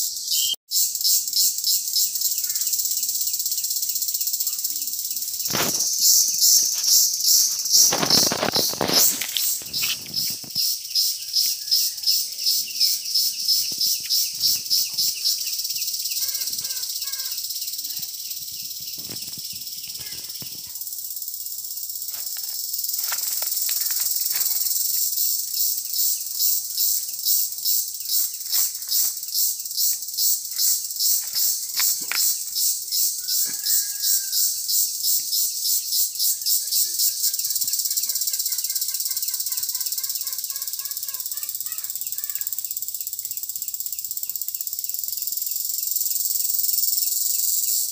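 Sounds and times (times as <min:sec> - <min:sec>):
faint bird chirps: 0:00.0 - 0:03.7, 0:04.4 - 0:20.8
insects chirring: 0:00.0 - 0:47.9.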